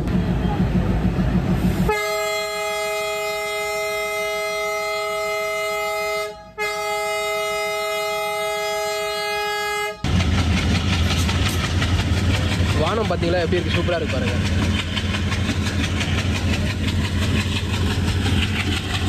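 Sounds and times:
diesel engine rumbling: 0:00.0 - 0:07.6, 0:08.2 - 0:19.0
locomotive horn blasts: 0:01.8 - 0:10.1.

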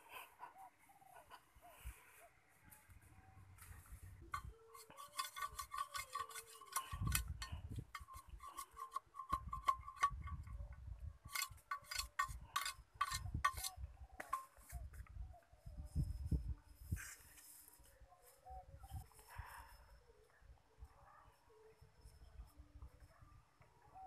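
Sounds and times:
knife scraping bamboo: 0:04.3 - 0:10.5, 0:11.3 - 0:14.8.

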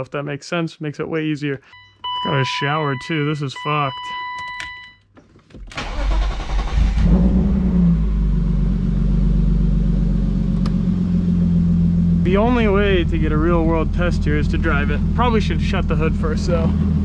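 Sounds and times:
car engine starter cranking: 0:05.6 - 0:07.4
car engine idling: 0:05.8 - 0:17.0.

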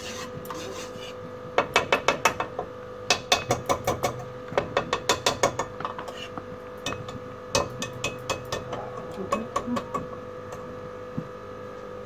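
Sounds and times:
whisk clacking in metal pan: 0:04.8 - 0:10.0.

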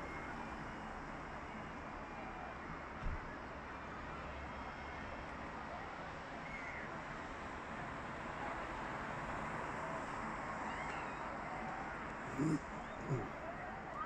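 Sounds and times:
crowd hubbub: 0:12.2 - 0:13.6
faint short calls: 0:12.3 - 0:13.3.

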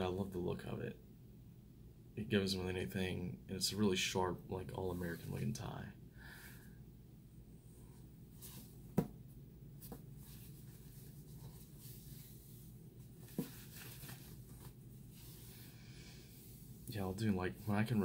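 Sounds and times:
fabric rustling: 0:09.8 - 0:17.0.

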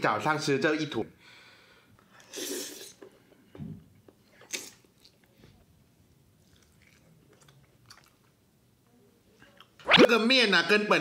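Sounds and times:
person slurping noodles: 0:02.2 - 0:03.0
person chewing: 0:06.4 - 0:08.3.

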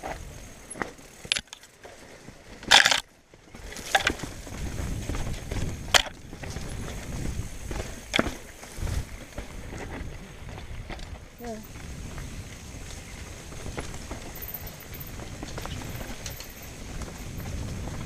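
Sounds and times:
tyres crunching on gravel: 0:00.0 - 0:18.0
wheels knocking on rocks: 0:00.0 - 0:18.0.

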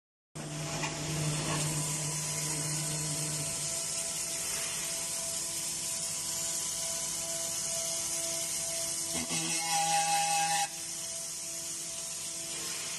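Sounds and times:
low hum: 0:00.4 - 0:09.3
spindle motor whining: 0:00.4 - 0:12.9
coolant water spraying: 0:01.0 - 0:09.1, 0:10.8 - 0:12.9.

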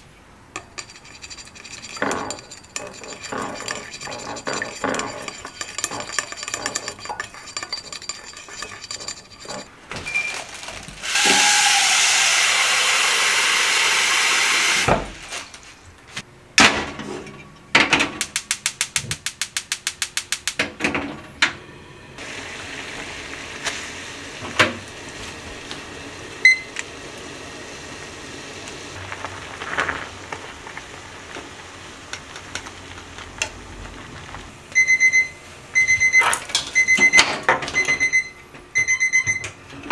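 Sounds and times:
gas flame and boiling water: 0:00.0 - 0:15.6, 0:16.9 - 0:39.9
chopsticks stirring in ceramic bowl: 0:00.6 - 0:09.7
water running into pot: 0:11.0 - 0:14.8, 0:22.2 - 0:33.2
short electronic beep: 0:34.8 - 0:37.2, 0:37.8 - 0:39.5.

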